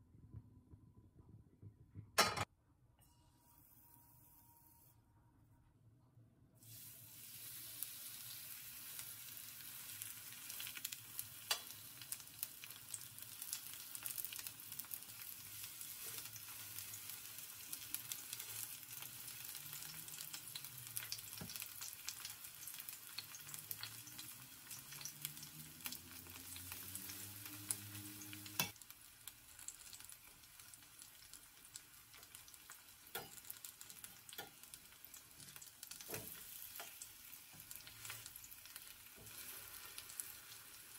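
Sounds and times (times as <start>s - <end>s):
fritters sizzling in hot oil: 6.6s - 40.9s
metal spatula clicking on pan: 33.1s - 33.5s.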